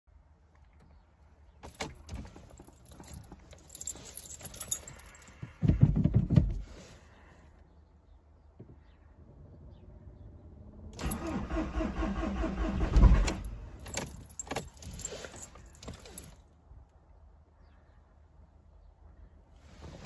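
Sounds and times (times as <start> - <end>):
car keys jangling and clicking: 1.6 - 5.4, 12.2 - 16.5.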